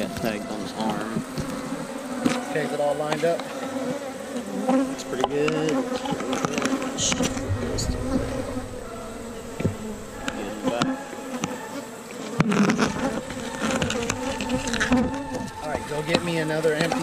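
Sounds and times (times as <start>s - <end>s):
bees buzzing: 0.0s - 17.0s
sharp knocks: 7.0s - 11.2s.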